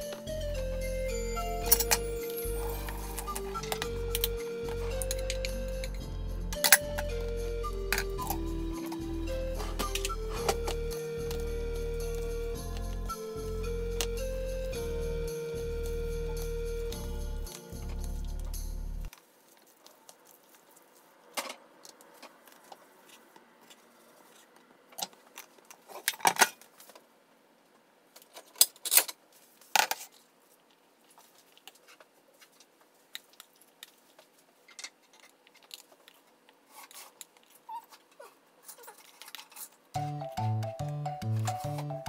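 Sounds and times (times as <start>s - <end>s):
background music: 0.0s - 19.1s, 40.0s - 42.0s.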